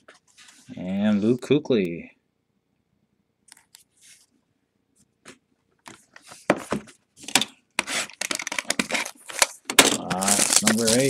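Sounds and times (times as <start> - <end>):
cards rustling and scraping: 5.3 - 11.0.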